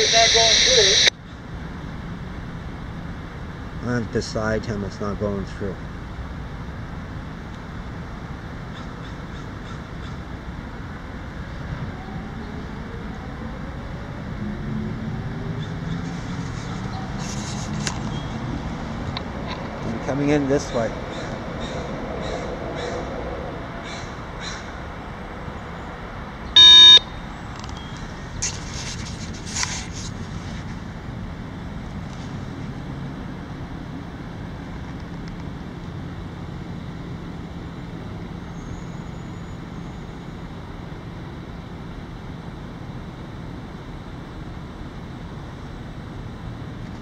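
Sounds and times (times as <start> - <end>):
loud electronic beep: 0.0 - 1.1, 26.5 - 28.0
steady low rumble: 0.0 - 38.5
handling clicks and rustles: 27.5 - 30.8.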